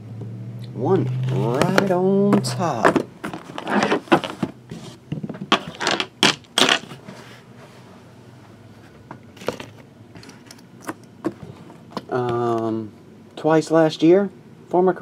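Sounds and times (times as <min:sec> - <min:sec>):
boxes knocking on tabletop: 0:01.6 - 0:04.6.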